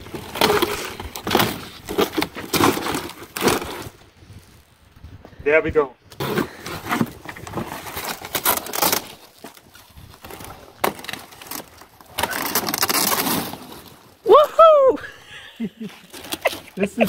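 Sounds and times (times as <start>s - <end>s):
cardboard ripping: 0.0s - 4.0s, 6.2s - 14.2s, 15.9s - 17.0s
plastic wrap crackling: 0.0s - 4.8s, 6.9s - 14.3s.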